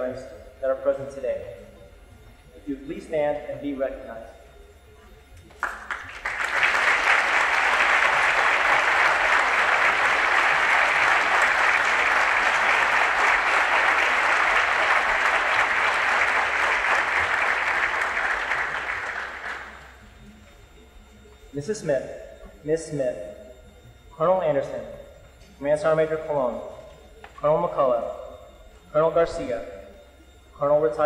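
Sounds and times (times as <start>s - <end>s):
crowd applauding: 5.5s - 20.0s.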